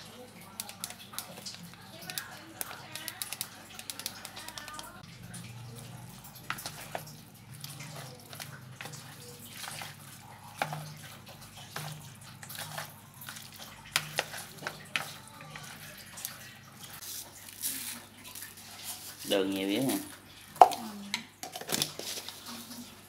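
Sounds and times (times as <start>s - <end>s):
wet squishing of raw meat: 0.0s - 20.9s.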